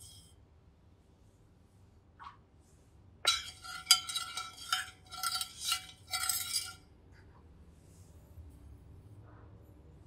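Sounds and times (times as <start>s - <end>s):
metal spoon scraping glass dish: 3.3s - 6.8s.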